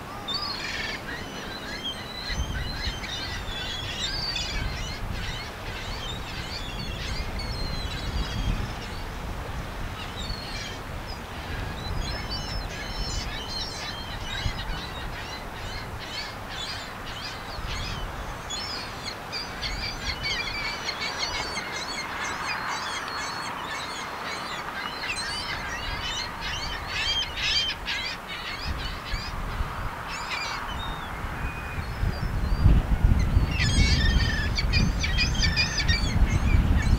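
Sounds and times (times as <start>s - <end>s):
small birds chirping: 10.0s - 36.9s.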